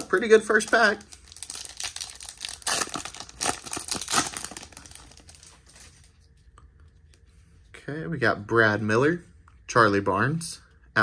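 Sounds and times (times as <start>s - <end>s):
wrapper tearing and crinkling: 0.0s - 6.1s.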